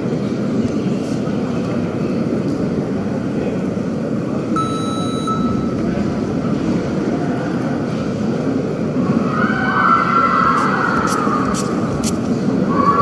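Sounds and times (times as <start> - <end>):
sports hall background noise: 0.0 - 13.0
thin high tone: 4.6 - 5.8.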